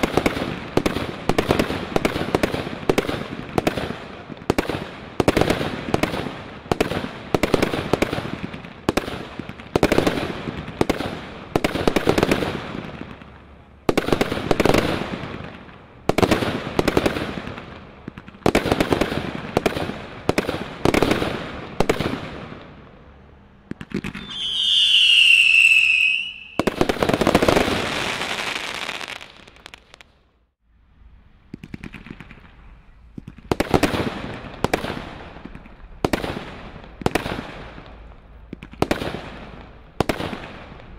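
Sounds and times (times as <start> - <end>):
firework bangs with crackling: 0.0 - 22.6, 23.7 - 30.1, 33.2 - 40.9
firework whistle: 24.0 - 29.3.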